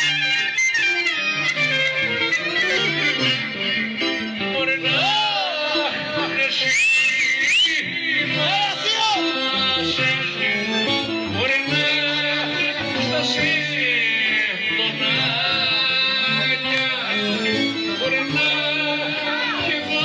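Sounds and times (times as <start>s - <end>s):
high ornamented melody: 0.0s - 6.8s
folk dance band music: 0.0s - 20.0s
plucked string instrument: 0.0s - 20.0s.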